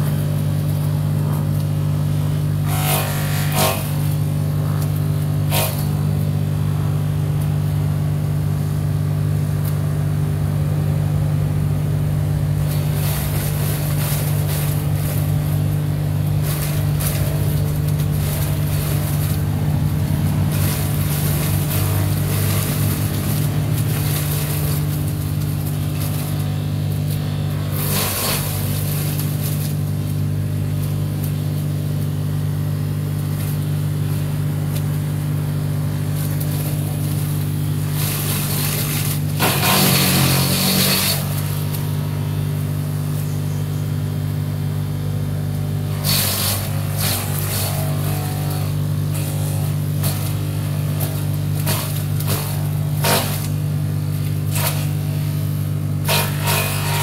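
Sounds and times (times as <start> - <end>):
wood chipper motor hum: 0.0 - 57.0
branches being chipped: 12.3 - 42.5, 45.7 - 57.0.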